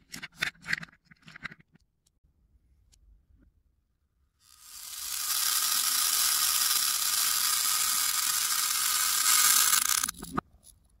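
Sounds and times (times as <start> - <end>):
beads rattling into plastic cup: 4.8 - 10.4.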